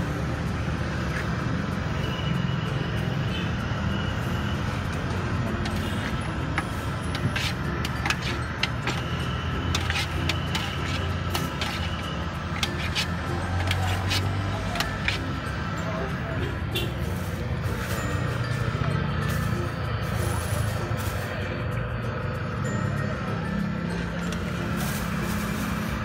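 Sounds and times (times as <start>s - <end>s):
ladle scraping metal pot: 5.6s - 15.6s.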